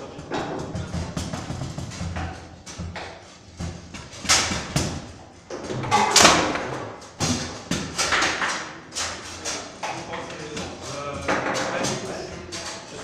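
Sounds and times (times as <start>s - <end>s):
table football figures striking ball: 0.2s - 8.7s.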